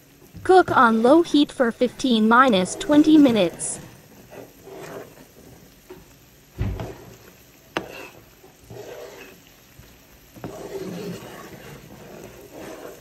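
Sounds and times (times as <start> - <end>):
sauce sizzling and bubbling: 0.0 - 13.0
dull thump: 6.6 - 7.0.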